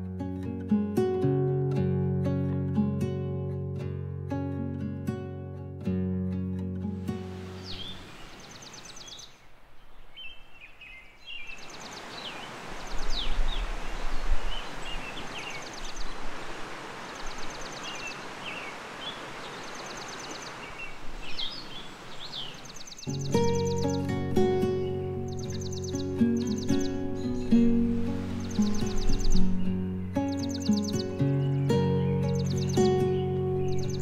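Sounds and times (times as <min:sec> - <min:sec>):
music: 0:00.0 - 0:07.9, 0:23.1 - 0:34.0
river water rushing: 0:07.0 - 0:09.8, 0:11.1 - 0:34.0
small birds chirping: 0:07.1 - 0:34.0.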